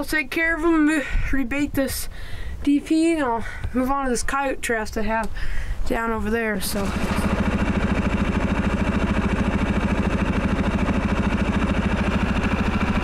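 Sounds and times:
engine idling: 6.6 - 13.0.

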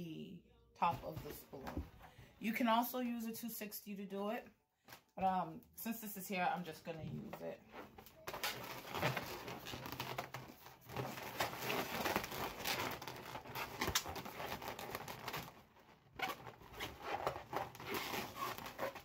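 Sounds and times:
balloons rubbing and crinkling: 6.8 - 19.0.

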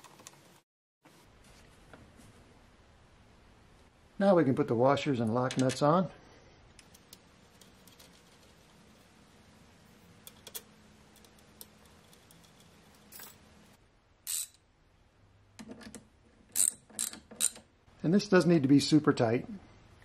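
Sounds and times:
metal washers and nuts clinking: 11.2 - 14.6.

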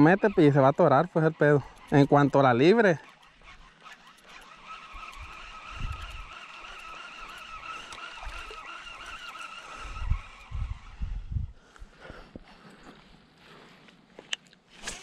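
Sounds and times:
fishing reel whirring: 0.0 - 11.4.

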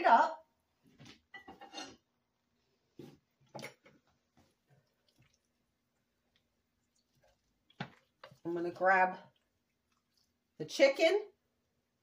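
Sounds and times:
utensil squishing into food: 3.2 - 10.6.

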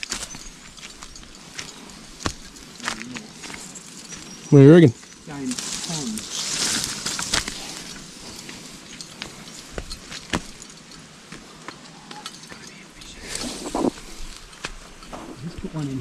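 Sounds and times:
footsteps crunching dry leaves: 0.0 - 10.6.

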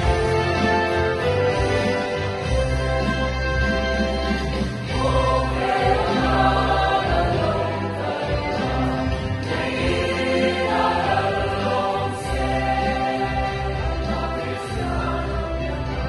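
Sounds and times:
keyboard accompaniment: 0.0 - 16.0
choir singing: 4.8 - 16.0.

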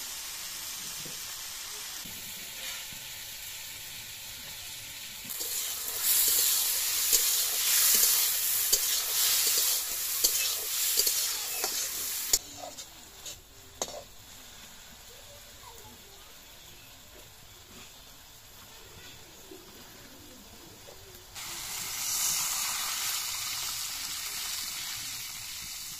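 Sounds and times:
vegetables sizzling in a wok: 0.0 - 25.9
metal spatula scraping a pan: 5.3 - 14.1.

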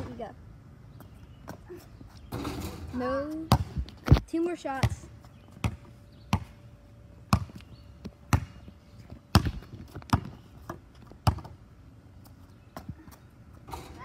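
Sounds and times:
rubber ball bouncing on asphalt: 7.3 - 8.6, 9.3 - 11.6.

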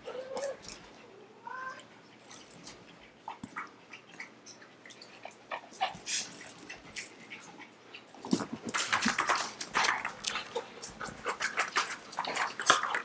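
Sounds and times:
dog whining: 0.0 - 1.9
dogs chewing on a plush toy: 1.8 - 13.0.

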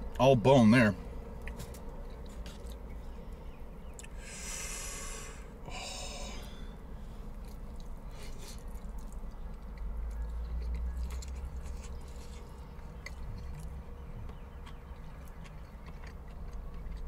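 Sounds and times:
low steady hum: 0.0 - 17.0
man breathing out through nose: 4.2 - 7.3.

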